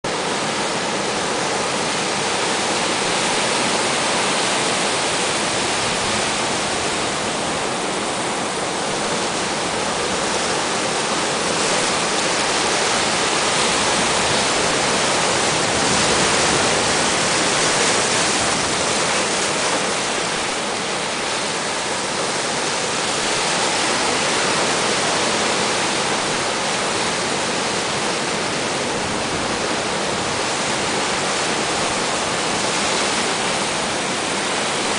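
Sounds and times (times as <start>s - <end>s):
storm surf breaking onshore: 0.1s - 34.9s.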